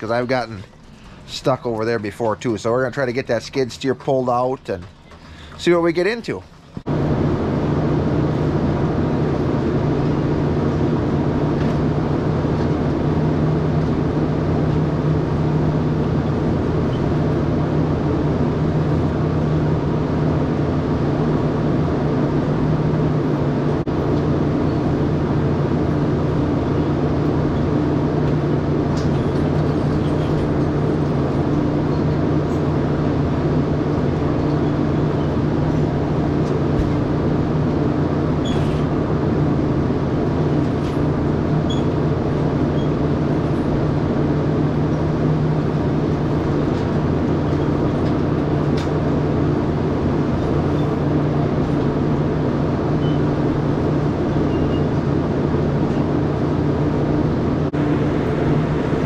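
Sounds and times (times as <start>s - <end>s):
steady mechanical hum: 0.0s - 59.0s.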